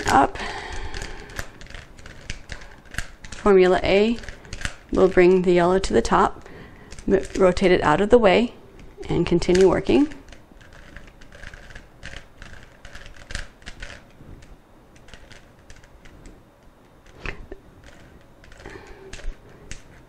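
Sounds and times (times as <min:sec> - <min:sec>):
puzzle cube clicking as twisted: 0:00.0 - 0:03.5, 0:04.1 - 0:05.3, 0:09.4 - 0:20.0.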